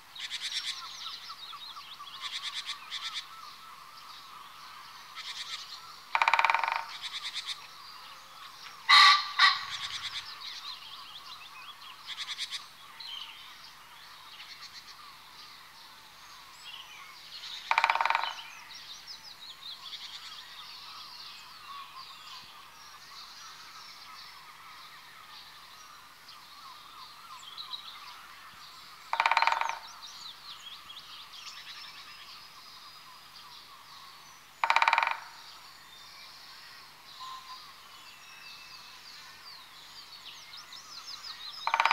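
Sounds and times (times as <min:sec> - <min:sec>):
small birds singing faintly: 0:00.0 - 0:41.9
woodpecker calls: 0:00.2 - 0:11.3, 0:11.9 - 0:12.7, 0:17.4 - 0:18.9, 0:26.6 - 0:32.1, 0:33.6 - 0:35.7, 0:40.9 - 0:41.9.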